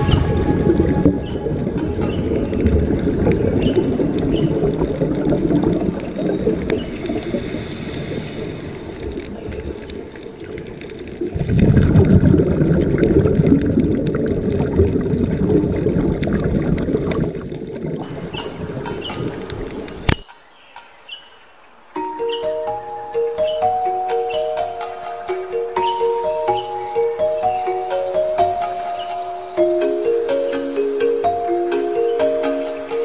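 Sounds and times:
underwater gurgling and bubbling: 0.0s - 20.2s.

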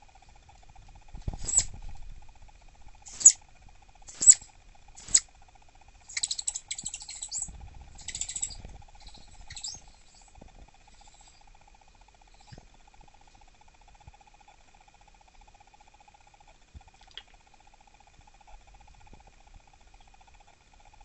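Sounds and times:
squirrel high-pitched chirps: 1.4s - 1.7s, 3.1s - 3.4s, 4.1s - 5.3s, 6.1s - 10.3s.

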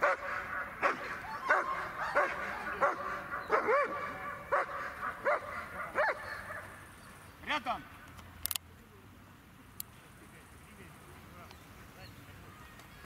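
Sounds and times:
dog barking: 0.0s - 6.8s.

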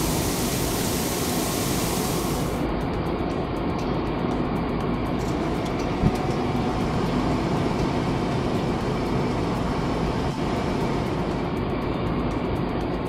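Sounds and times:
machine hissing: 0.0s - 2.6s.

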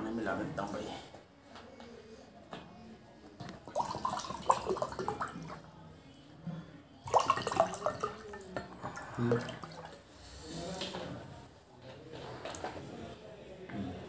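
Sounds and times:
water pouring into glass: 3.5s - 5.7s, 7.0s - 10.1s.

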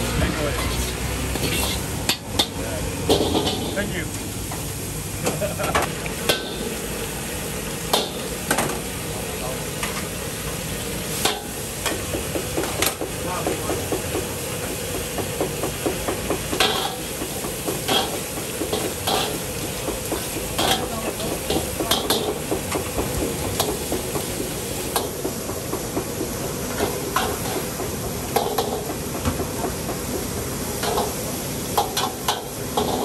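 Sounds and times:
sizzling hiss: 0.0s - 33.0s
metal ladle scraping a wok: 0.6s - 1.9s, 17.8s - 19.5s.

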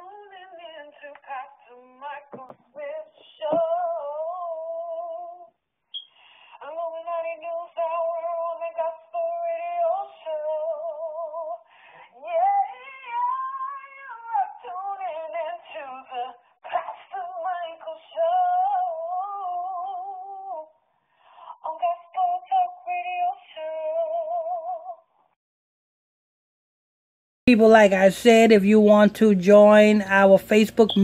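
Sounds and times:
woman singing with vibrato: 0.0s - 5.5s, 6.5s - 20.8s, 21.4s - 25.1s.

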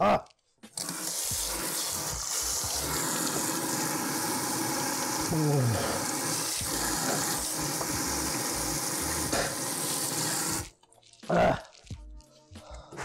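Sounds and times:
faucet water splashing: 0.8s - 10.8s.

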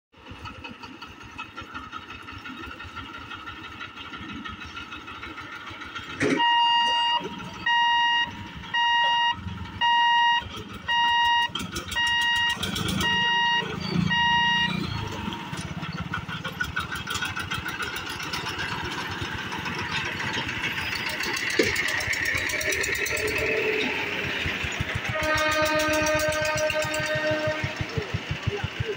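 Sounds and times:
motorcycle engines: 0.2s - 28.9s
level crossing warning beeper: 6.2s - 15.8s, 22.6s - 28.1s.

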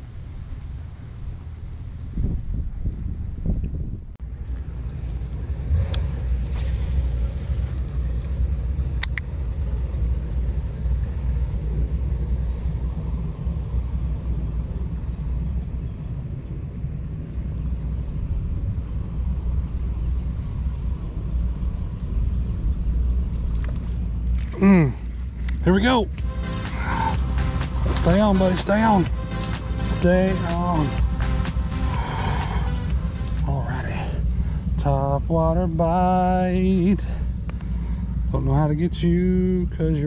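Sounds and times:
wind buffeting microphone: 0.0s - 26.2s, 31.9s - 40.0s
sharp clicks: 9.0s - 9.4s.

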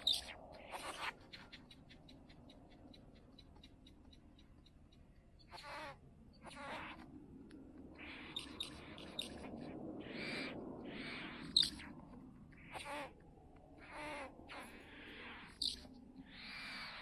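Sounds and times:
quick bird ticks: 1.2s - 5.3s.

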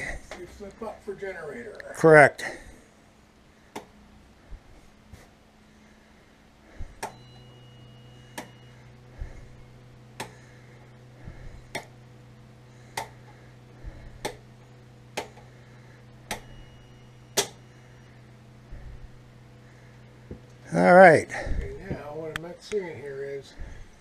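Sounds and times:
low steady hum: 0.0s - 24.0s
toggle switch clicks: 16.3s - 16.5s.

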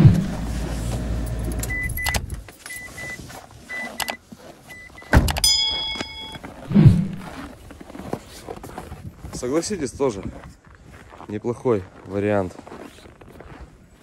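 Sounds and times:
short high electronic beeps: 1.7s - 7.2s
car door slamming: 5.1s - 5.5s
brief ringing tone: 5.4s - 7.2s.

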